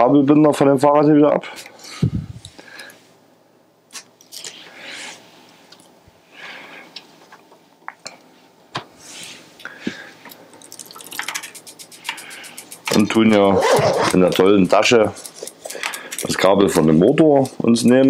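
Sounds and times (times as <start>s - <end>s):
handling rustling: 13.0s - 15.7s.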